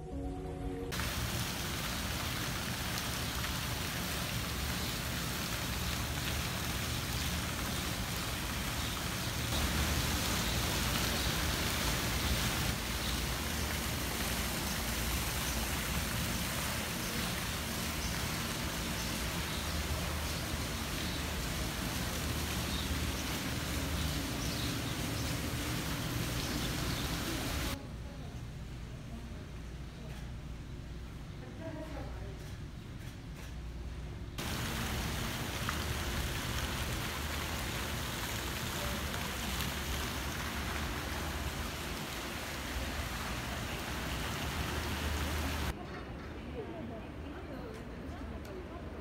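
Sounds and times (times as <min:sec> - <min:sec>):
fountains splashing into pool: 0:00.9 - 0:27.8, 0:34.4 - 0:45.8.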